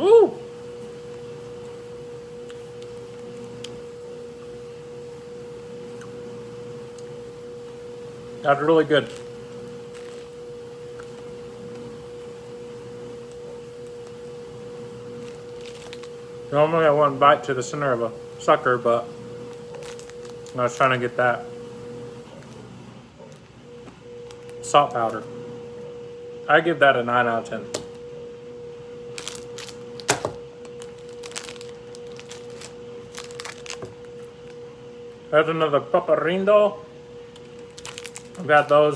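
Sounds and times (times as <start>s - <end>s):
steady single-pitched hum: 0.0s - 38.9s
plastic wrapper crinkling: 9.0s - 11.3s, 15.1s - 16.2s, 19.5s - 21.2s, 24.2s - 25.2s, 29.1s - 34.6s, 37.4s - 38.9s.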